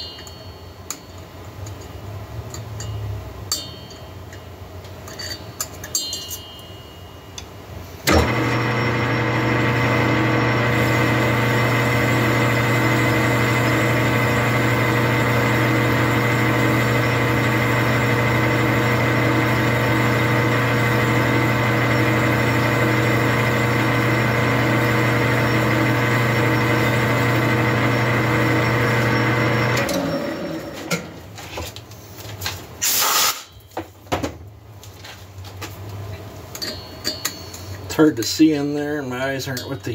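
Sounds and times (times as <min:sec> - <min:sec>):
metallic clicks and clinks: 0:00.0 - 0:06.8
lathe running with gear whine: 0:08.1 - 0:31.1.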